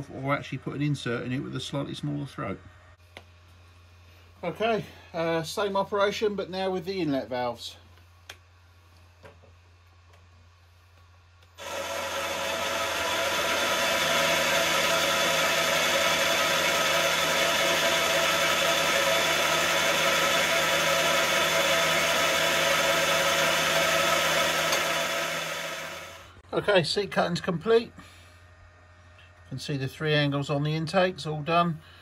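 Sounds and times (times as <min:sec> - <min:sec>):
milling machine spindle whining: 0:11.6 - 0:26.4.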